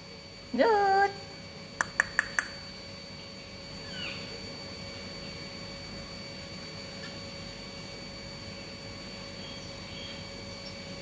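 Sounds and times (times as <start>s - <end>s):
sharp clicks: 1.8s - 2.6s.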